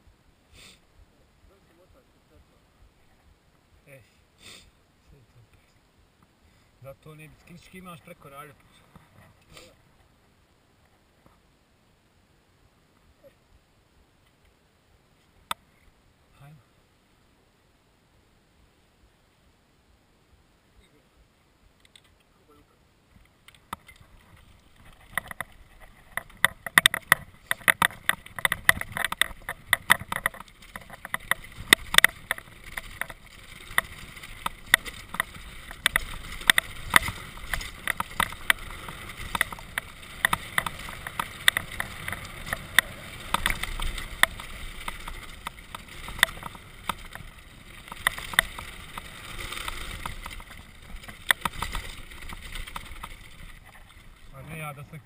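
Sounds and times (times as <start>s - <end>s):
bike rattling on rough trail: 23.4s - 55.0s
tyres crunching on gravel: 23.6s - 54.8s.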